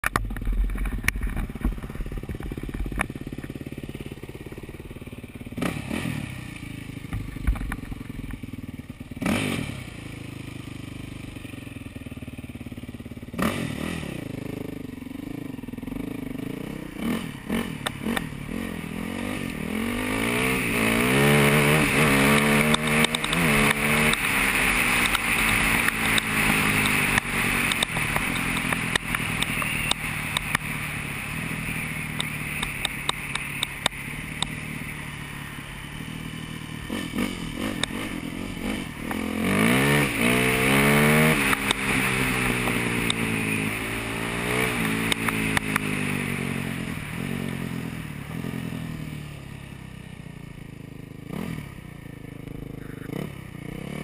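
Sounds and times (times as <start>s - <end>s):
gravel clattering and scraping: 0.0s - 3.6s
dirt bike engine revving: 2.0s - 7.7s, 8.5s - 11.4s, 12.6s - 49.2s, 51.2s - 54.0s.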